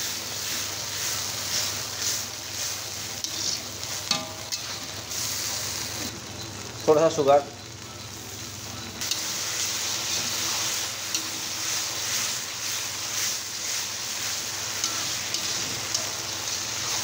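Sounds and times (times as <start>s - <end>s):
food sizzling in a pan: 0.0s - 17.0s
fork stirring and scraping: 3.2s - 4.8s
fork clicking on pan: 14.8s - 16.1s.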